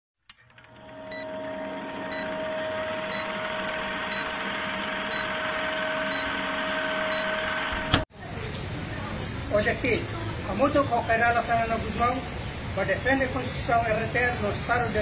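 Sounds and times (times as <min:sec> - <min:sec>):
film projector whirring and clicking: 0:00.3 - 0:08.1
short high beeps: 0:01.0 - 0:08.0.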